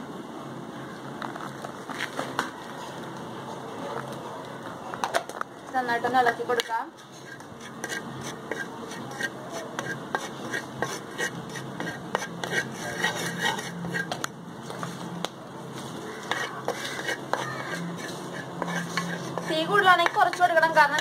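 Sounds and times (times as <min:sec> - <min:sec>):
wooden spatula scraping pan: 0:06.3 - 0:14.2, 0:15.8 - 0:21.0.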